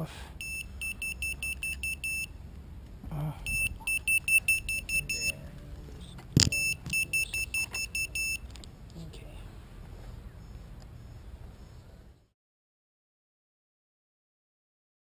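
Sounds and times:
short high electronic beeps: 0.4 - 2.3, 3.5 - 5.4, 6.5 - 8.4
handling knock: 6.2 - 7.0.

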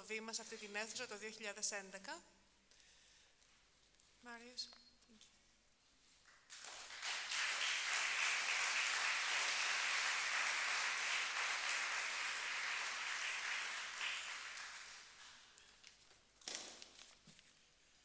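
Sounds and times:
audience applauding: 6.5 - 15.6.

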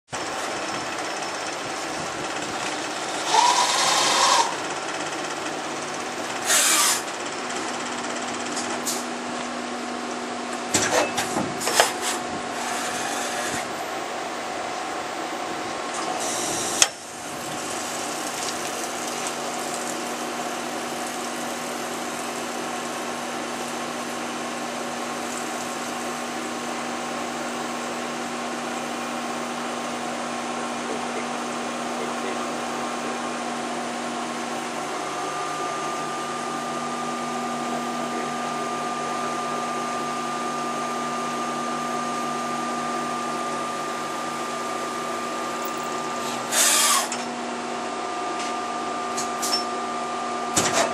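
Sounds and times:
milling machine running: 0.2 - 8.8, 11.0 - 50.6.

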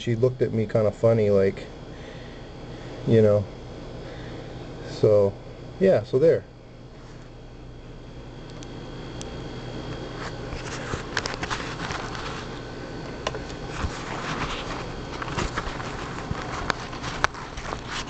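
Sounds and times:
camera handling rustling: 10.2 - 12.6, 13.2 - 18.0.

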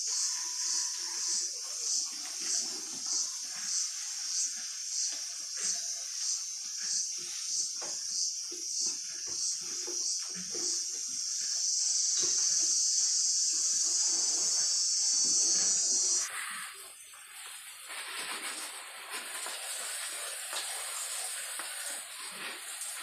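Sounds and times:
sprayer misting hiss: 0.0 - 23.0
loud high hiss: 10.0 - 23.0.

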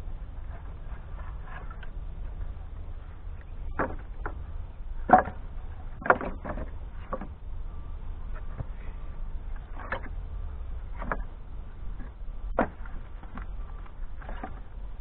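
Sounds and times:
steady low rumble: 0.0 - 15.0
firewood clunking together: 3.4 - 4.4, 5.0 - 7.4, 9.6 - 10.2, 10.9 - 14.7.

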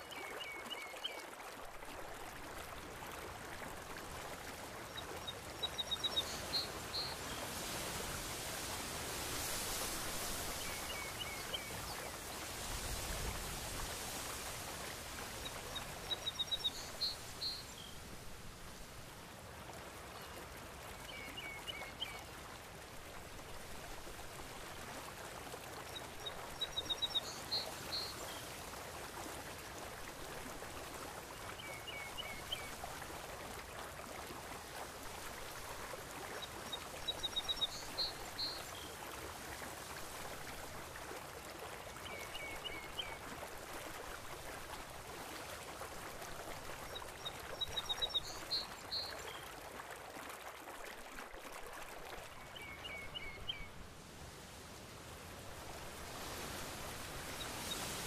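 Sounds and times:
sea water washing: 1.6 - 20.0.

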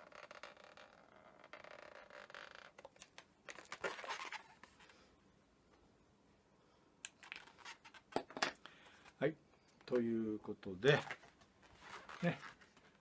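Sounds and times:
marker rubbing on balloon: 0.0 - 2.9.

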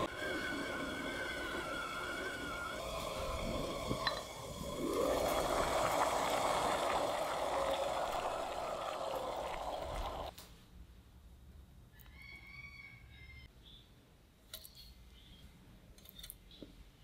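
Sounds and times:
liquid bubbling and gurgling: 0.0 - 10.3.

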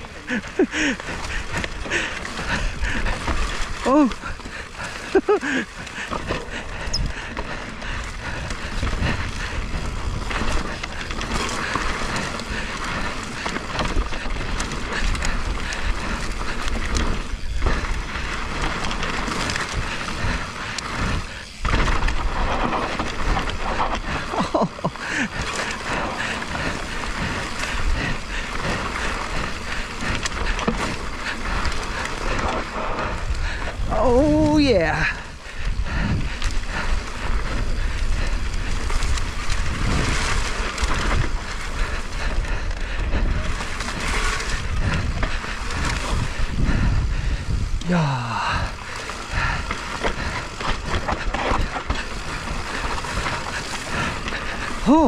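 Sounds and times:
bike rattle: 0.0 - 55.0
tyres rolling on dirt: 0.0 - 55.0
wind rumble on microphone: 0.0 - 55.0.

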